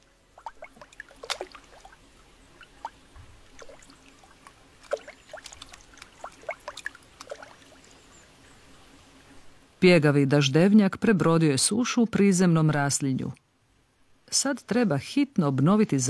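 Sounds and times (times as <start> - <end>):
raindrops plinking into water: 2.6 - 7.6.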